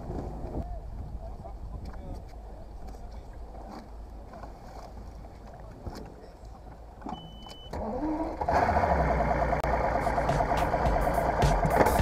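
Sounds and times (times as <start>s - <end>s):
outboard engine cranking and running: 6.9s - 12.0s
short electronic beep: 7.1s - 7.8s.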